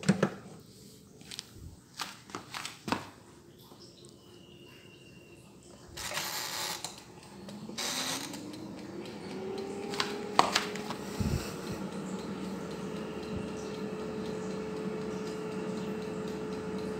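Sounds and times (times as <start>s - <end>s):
air fryer fan whirring: 5.5s - 16.9s.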